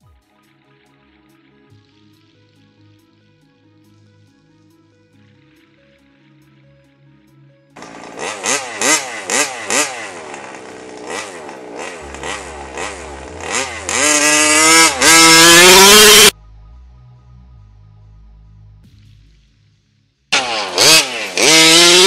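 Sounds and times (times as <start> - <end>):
two-stroke engine revving: 7.8 - 16.3, 20.3 - 22.0.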